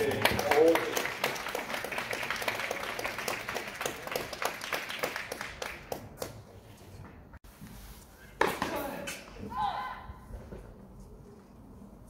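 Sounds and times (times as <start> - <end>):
crowd applause: 0.0 - 5.8.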